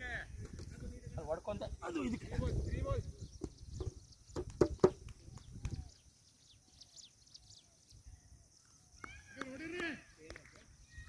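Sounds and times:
birds chirping faintly: 0.0s - 11.0s
sharp knocks: 3.8s - 5.1s.

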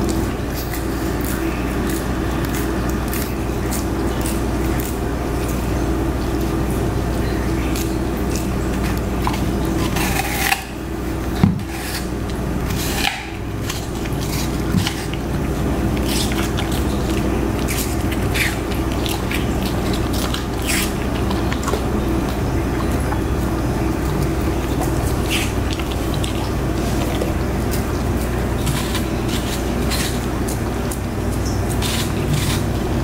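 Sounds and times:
dog crunching an apple: 0.0s - 33.0s
steady low hum: 0.0s - 33.0s.

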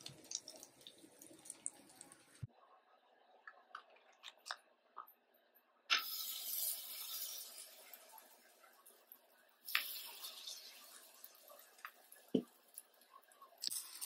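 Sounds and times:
batter sizzling in hot oil: 0.0s - 2.5s, 5.9s - 14.0s
oil crackling in frying pan: 0.0s - 2.5s, 5.9s - 14.0s.

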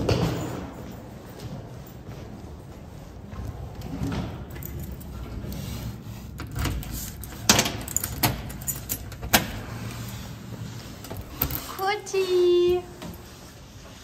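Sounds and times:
keys jangling: 4.4s - 5.6s, 6.5s - 9.5s.

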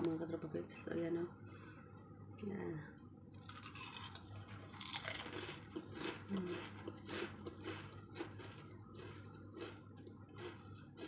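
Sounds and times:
potato chip crunching: 3.4s - 11.0s.

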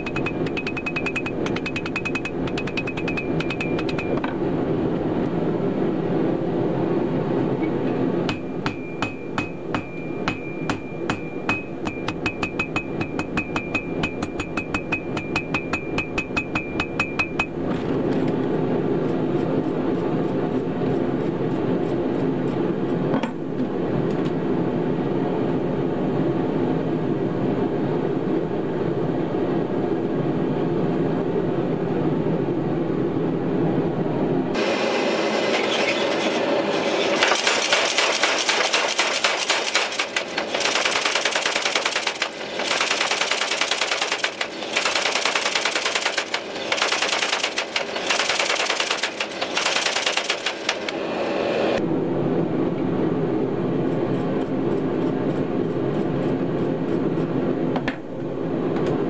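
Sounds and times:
hammer ringing on steel anvil: 0.0s - 4.2s, 8.3s - 17.6s.

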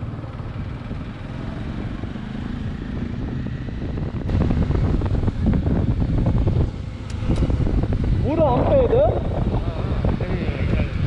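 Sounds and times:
motorcycle engine running: 0.0s - 11.0s
wind noise on microphone: 1.8s - 11.0s.

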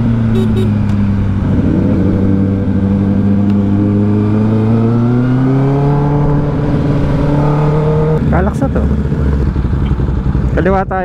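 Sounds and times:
motorcycle engine cruising: 0.0s - 11.0s.

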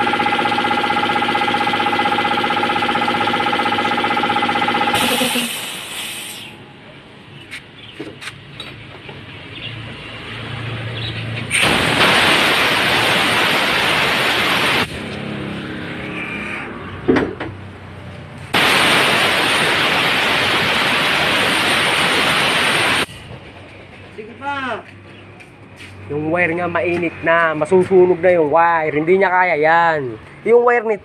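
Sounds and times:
compressed air hissing: 5.0s - 6.6s, 11.5s - 14.9s.

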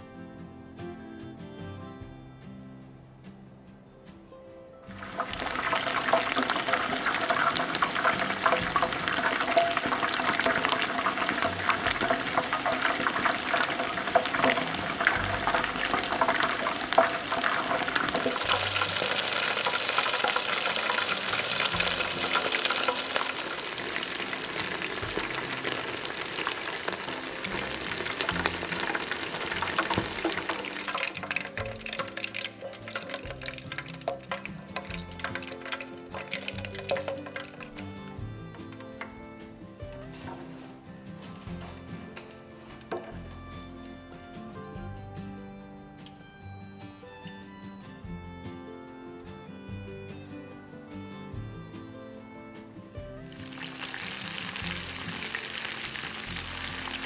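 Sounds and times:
chicken deep-frying in oil: 4.9s - 37.8s, 53.3s - 57.0s.

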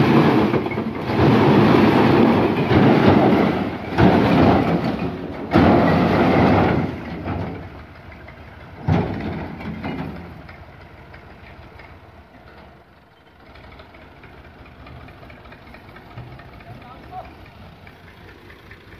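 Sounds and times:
bricks crashing onto a pile: 0.0s - 7.7s
tractor engine idling: 0.0s - 18.9s.

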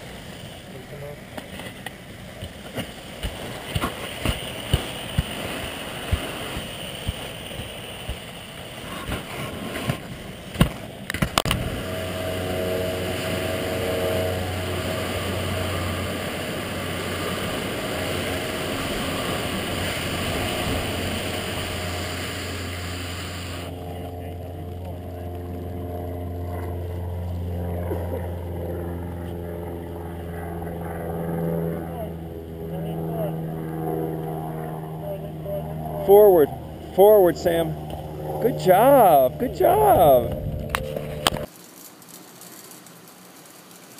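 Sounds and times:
skis sliding on plastic slope: 0.0s - 11.5s, 41.5s - 43.9s.

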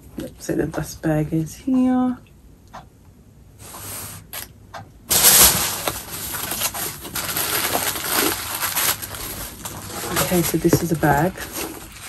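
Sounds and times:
tissue paper rustling and crinkling: 5.1s - 12.0s.

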